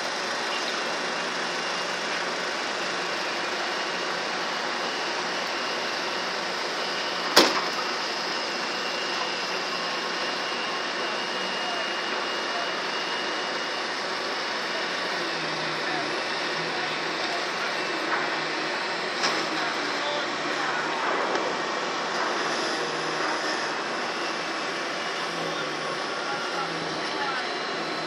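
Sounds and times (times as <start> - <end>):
construction site noise: 0.0 - 28.0
sharp bang: 7.4 - 7.8.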